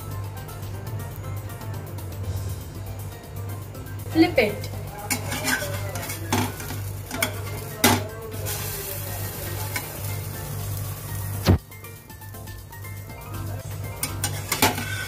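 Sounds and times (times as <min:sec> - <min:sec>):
batter sizzling in a pan: 0:04.2 - 0:15.0
spatula scraping and knocking pan: 0:05.1 - 0:08.1, 0:14.0 - 0:15.0.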